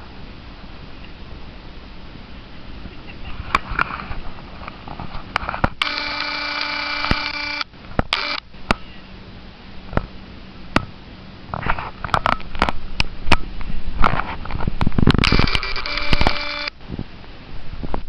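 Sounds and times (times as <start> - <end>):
camera lens clicks: 5.8 - 8.4, 15.1 - 16.8
camera zoom motor whining: 5.8 - 8.4, 15.2 - 16.8.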